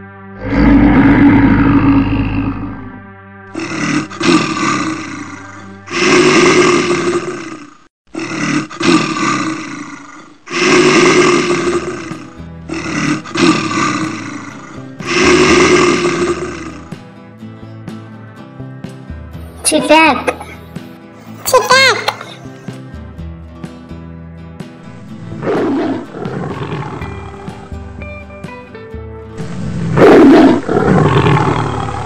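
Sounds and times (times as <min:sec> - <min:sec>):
background music: 0:00.0 - 0:32.0
bear roaring: 0:00.4 - 0:03.0, 0:03.6 - 0:17.0, 0:24.8 - 0:28.1, 0:29.4 - 0:32.0.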